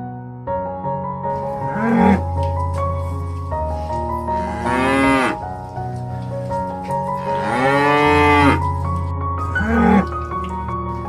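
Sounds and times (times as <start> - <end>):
background music: 0.0 - 11.0
water buffalo mooing: 1.4 - 2.5, 3.9 - 11.0.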